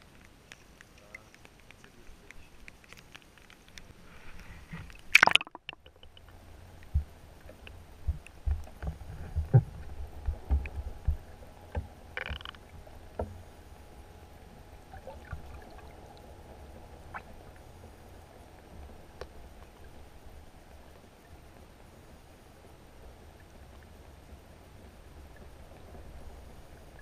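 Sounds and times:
camera splashing into water: 5.1s - 6.0s
muffled underwater thumps: 6.9s - 13.4s.

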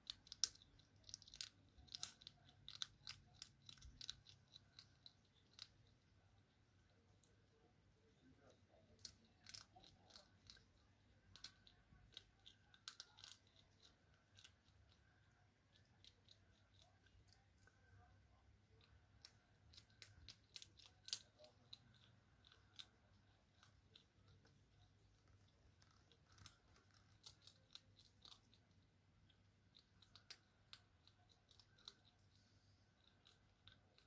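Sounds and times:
hedgehog chewing kibble: 0.0s - 34.0s.

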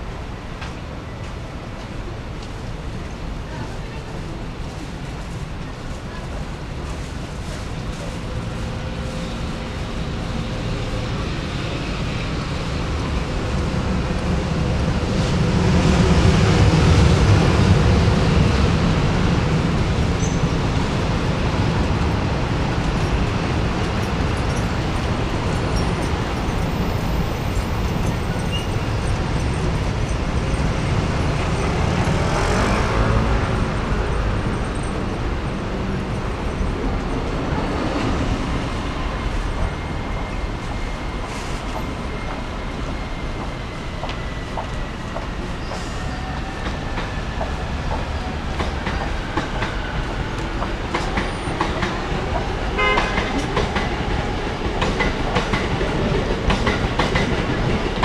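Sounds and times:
outdoor traffic noise: 0.0s - 58.0s.

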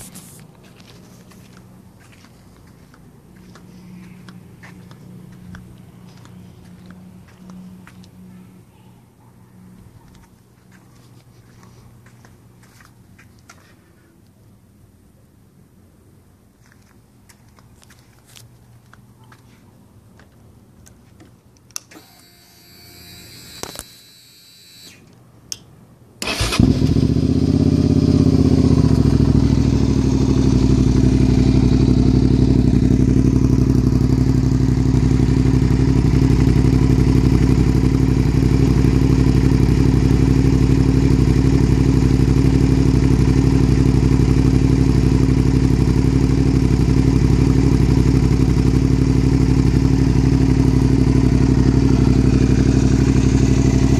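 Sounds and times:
motorcycle engine idling: 26.2s - 53.9s.

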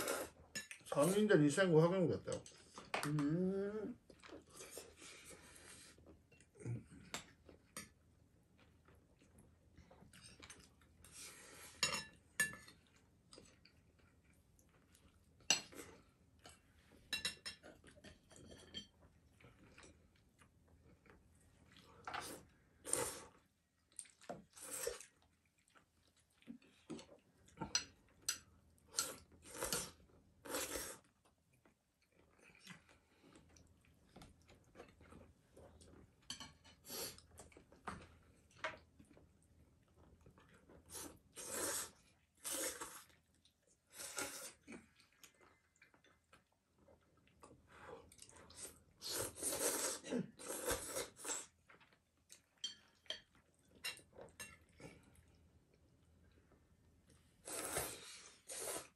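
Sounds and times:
noodles being slurped: 0.0s - 1.3s, 29.0s - 31.2s, 40.8s - 45.4s, 48.1s - 51.7s, 57.4s - 58.9s
chewing: 17.6s - 58.9s.

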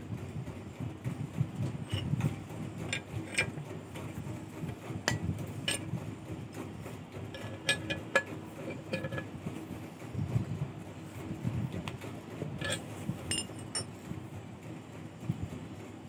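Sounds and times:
low steady rumble: 0.0s - 16.0s
metallic clicks of bending wire: 7.4s - 9.3s, 12.6s - 13.9s.

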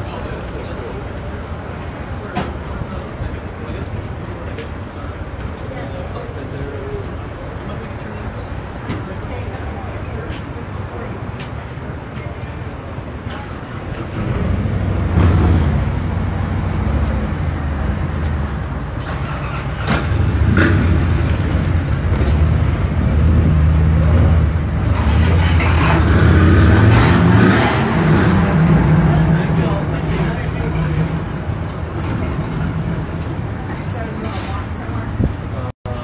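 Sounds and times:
street noise: 0.0s - 36.0s
voices: 26.8s - 36.0s.

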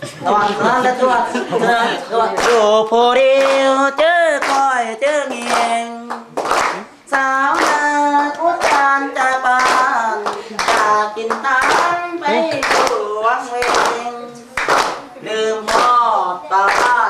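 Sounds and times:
children clapping hands: 2.4s - 2.7s, 3.3s - 17.0s
children singing together: 7.1s - 17.0s.

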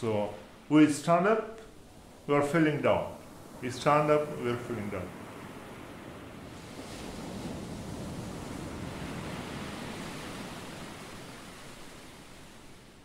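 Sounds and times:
sea waves rushing: 0.0s - 13.0s.

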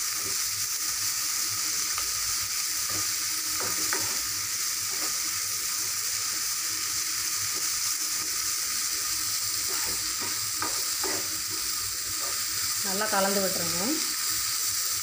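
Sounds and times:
fish and onions sizzling in oil: 0.0s - 15.0s
scraping against pan: 9.6s - 12.5s.

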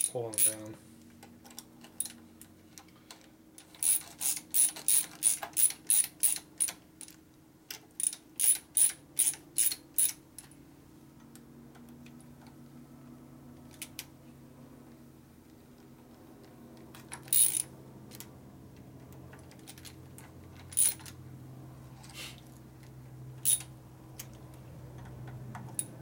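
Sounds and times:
hand ratchet clicking: 3.6s - 7.2s, 8.0s - 10.2s, 17.3s - 17.6s, 23.4s - 23.7s.

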